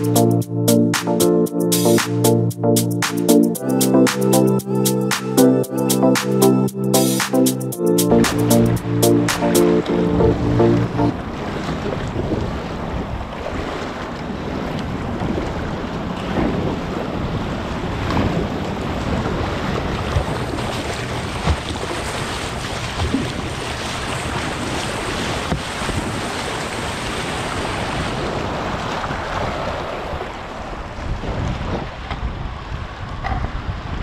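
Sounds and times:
wind buffeting microphone: 11.2 - 34.0
paddle strokes splashing: 17.8 - 31.1.

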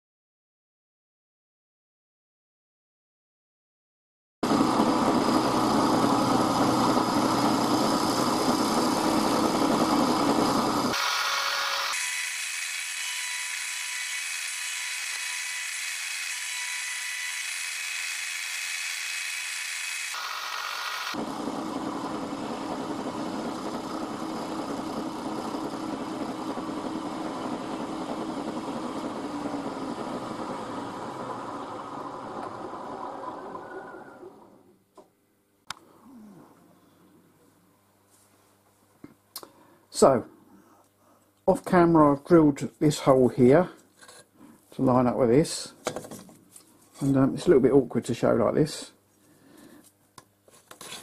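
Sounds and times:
milling machine cutting metal: 4.4 - 34.4.

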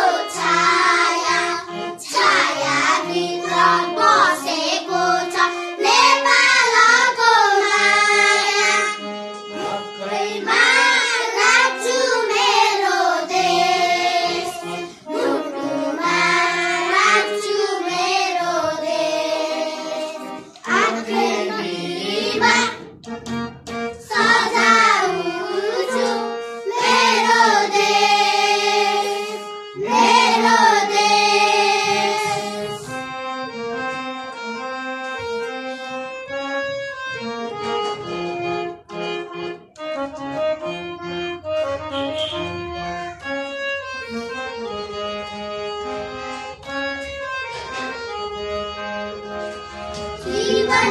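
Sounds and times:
children singing in unison: 0.0 - 22.9, 24.0 - 33.0, 50.1 - 50.9
instrumental music short notes: 0.0 - 50.9.

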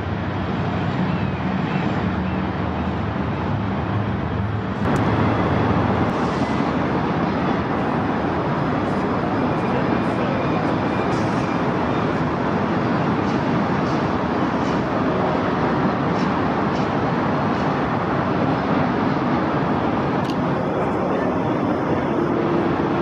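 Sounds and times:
distant engine drone: 0.0 - 23.0
rushing noise: 0.0 - 23.0.

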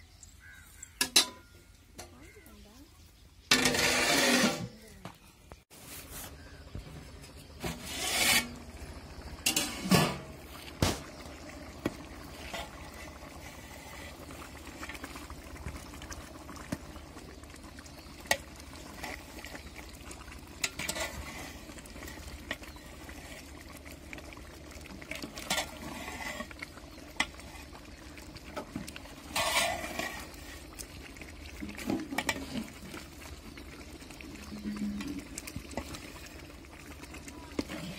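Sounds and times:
metal ladle clanking on pot: 1.0 - 2.2, 3.5 - 4.7, 9.4 - 11.0.

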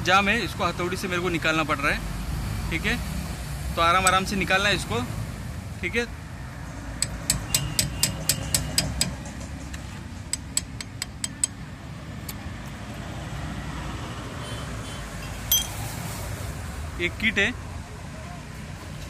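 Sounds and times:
road traffic rumble: 0.0 - 19.0
hammer tapping on steel pipe: 7.0 - 9.4, 10.3 - 11.6.

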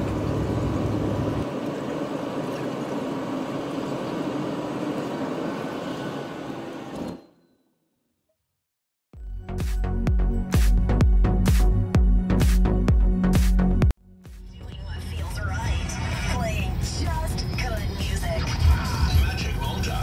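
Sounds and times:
airliner engine and airflow noise: 0.0 - 7.4.

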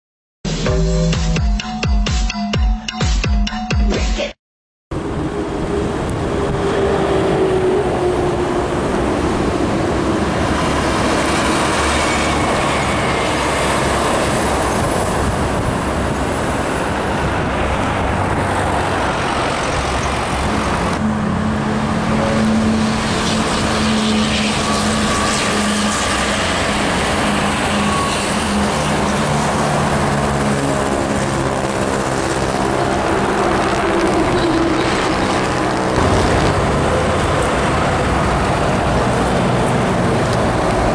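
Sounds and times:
heavy trucks passing: 4.9 - 40.9.

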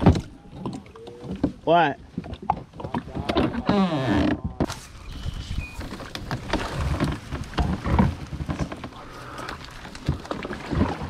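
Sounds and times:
reeds scraping a kayak hull: 2.7 - 11.0.

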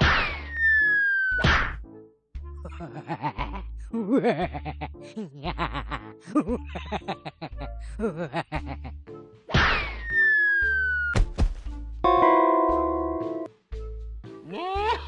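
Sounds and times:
cartoon character giggling: 2.6 - 9.0.

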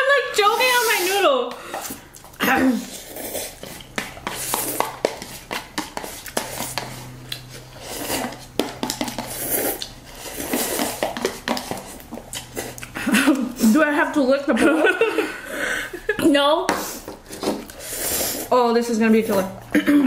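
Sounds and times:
paper cups being handled: 0.0 - 13.8, 16.7 - 19.6
slurping noodles: 0.5 - 13.7, 16.9 - 18.6
chopsticks clicking on paper cups: 8.2 - 13.5.

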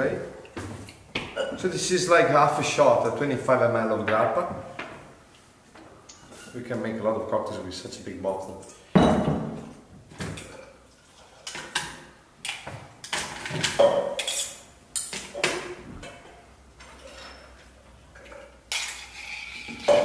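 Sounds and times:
ice clinking on metal: 18.2 - 20.0.

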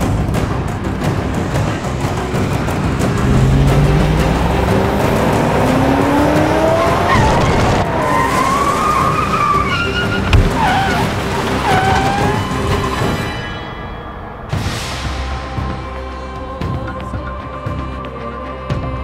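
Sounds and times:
car engine revving: 0.0 - 13.3
dramatic soundtrack music: 0.0 - 19.0
tyres squealing: 1.9 - 13.6.

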